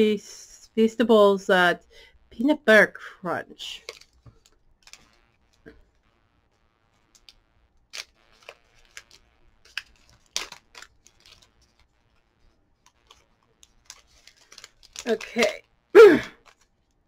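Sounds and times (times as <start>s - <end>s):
plastic wrapper crinkling: 3.7s - 6.0s, 6.9s - 17.0s.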